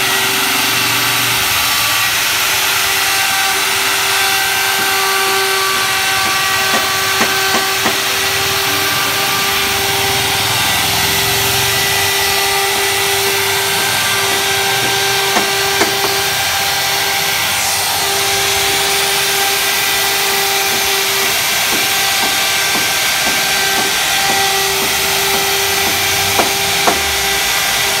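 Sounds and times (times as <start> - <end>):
router bit cutting wood: 0.0 - 28.0
router motor whine: 0.0 - 28.0
sharp knocks: 4.2 - 9.5, 12.4 - 16.6, 20.0 - 27.4.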